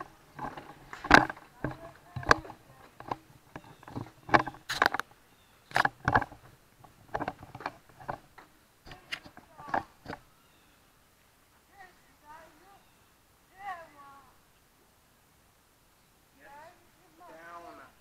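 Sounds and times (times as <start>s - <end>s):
irregular clicks and knocks: 0.0s - 10.3s.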